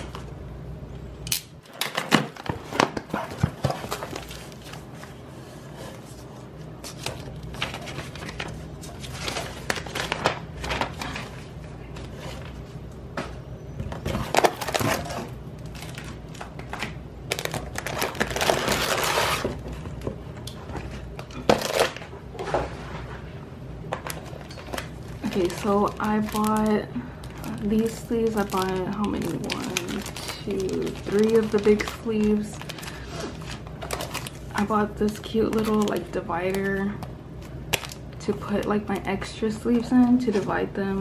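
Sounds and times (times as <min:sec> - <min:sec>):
plastic packaging crinkling: 0:01.7 - 0:05.2, 0:06.8 - 0:12.6, 0:14.0 - 0:19.9, 0:21.1 - 0:22.1, 0:23.9 - 0:39.1.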